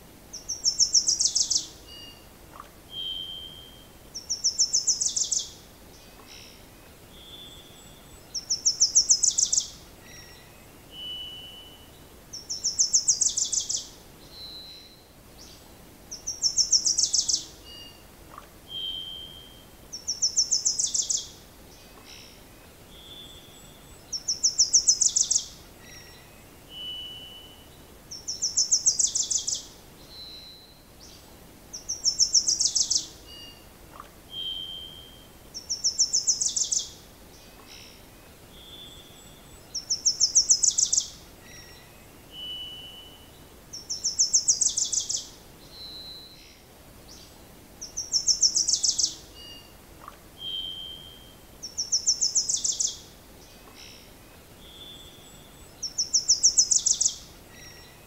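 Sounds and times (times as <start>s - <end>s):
songbird trilling: 0.3s - 5.6s, 7.2s - 11.7s, 12.3s - 15.0s, 16.1s - 21.4s, 23.0s - 26.2s, 26.8s - 30.6s, 31.7s - 37.0s, 38.6s - 46.4s, 47.8s - 53.0s, 54.7s - 58.0s
soft whistled bird notes: 0.4s - 21.4s, 22.0s - 31.2s, 31.8s - 46.6s, 47.2s - 58.0s.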